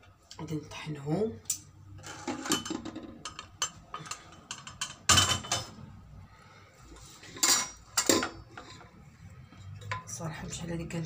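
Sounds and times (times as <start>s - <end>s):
utensils and dishes clattering: 1.5s - 5.9s, 7.1s - 9.0s, 9.6s - 10.2s.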